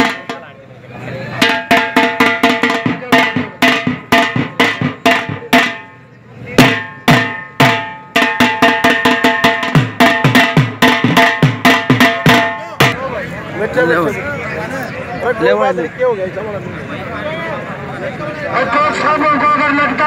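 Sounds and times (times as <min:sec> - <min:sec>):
drums beaten in driving rhythm: 0:00.0 - 0:00.5, 0:01.3 - 0:13.0.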